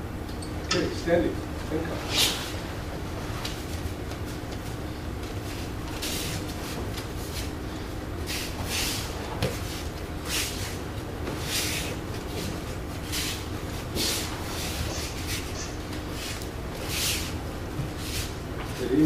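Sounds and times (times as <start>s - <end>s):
steady low hum: 0.0s - 19.0s
bare feet sliding on mat: 3.2s - 7.6s, 8.2s - 19.0s.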